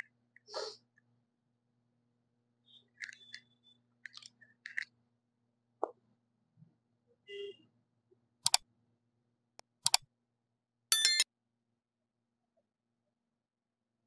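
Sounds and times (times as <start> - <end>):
mouse clicks: 8.4 - 8.6, 9.6 - 10.0.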